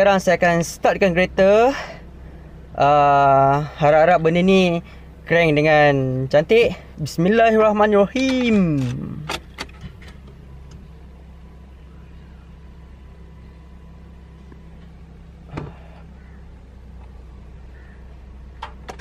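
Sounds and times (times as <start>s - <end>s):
steady low hum: 0.0s - 19.0s
ignition key clicks: 8.1s - 10.9s, 18.6s - 19.0s.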